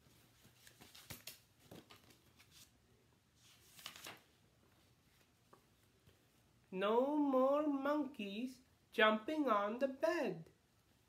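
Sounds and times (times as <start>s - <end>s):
picture book pages rustling: 0.0s - 6.5s.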